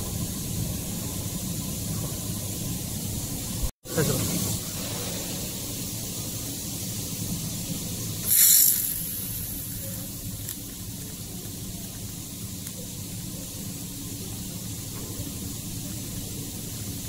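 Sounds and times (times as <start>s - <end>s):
laser welder hiss and hum: 3.3s - 17.0s
welding head hissing burst: 7.9s - 11.6s.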